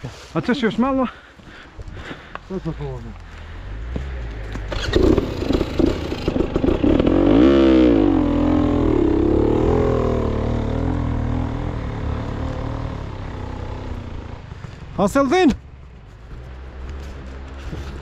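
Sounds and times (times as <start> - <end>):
off-road motorcycle engine revving: 3.5 - 14.8.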